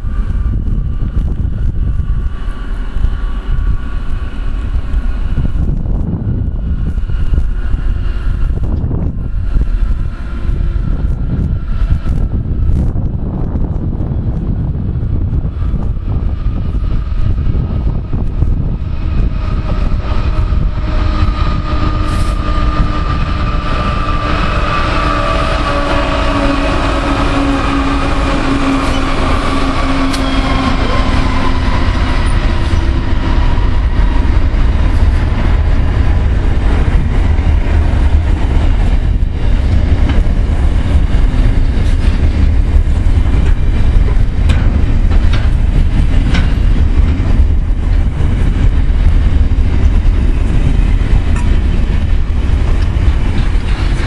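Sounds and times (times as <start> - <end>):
diesel locomotive engine rumble: 0.0 - 54.0
train wheels clicking over rails: 15.3 - 54.0.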